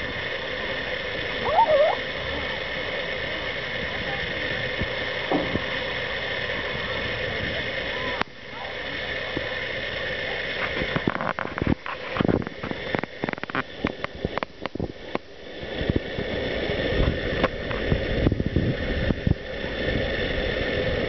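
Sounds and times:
sharp clicks and knocks: 10.6s - 16.0s
wind buffeting microphone: 10.7s - 21.0s.

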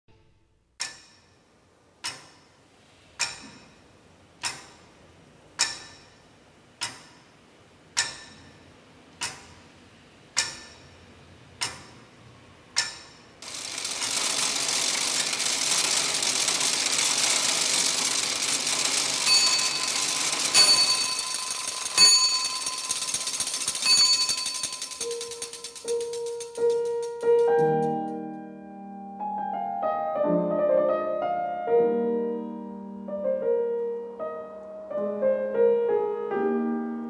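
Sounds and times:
clockwork ticks: 0.8s - 1.3s, 3.2s - 3.7s, 4.4s - 4.8s, 5.6s - 6.0s, 8.0s - 8.6s, 9.2s - 9.6s, 10.4s - 10.9s, 11.6s - 12.0s, 12.8s - 28.1s
whirring gears and ratchets: 12.8s - 27.8s
bell-like ringing tones: 18.9s - 26.6s.

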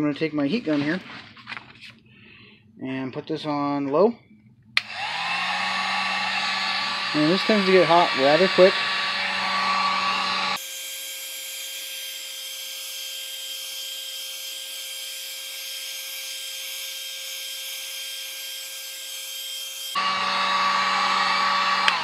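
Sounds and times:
heat gun blowing: 4.8s - 10.7s, 19.9s - 22.0s.

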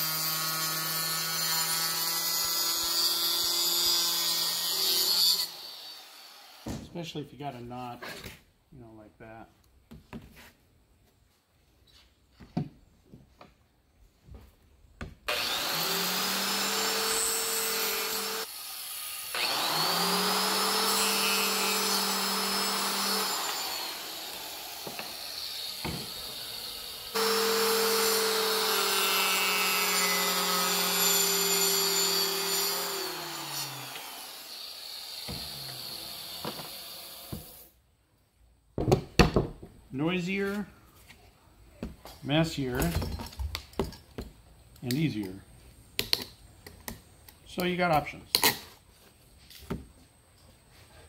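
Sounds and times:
saw whining while cutting tile: 0.0s - 6.7s, 15.3s - 37.6s.

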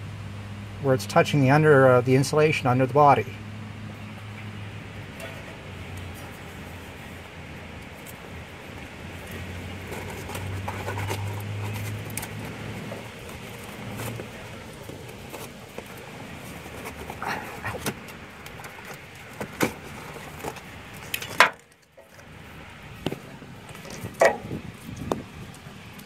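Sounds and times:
low hum: 0.0s - 19.3s.

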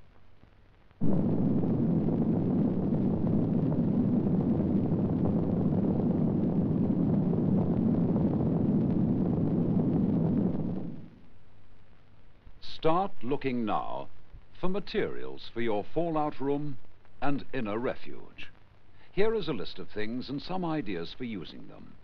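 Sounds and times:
deep explosion rumble: 1.0s - 11.4s.

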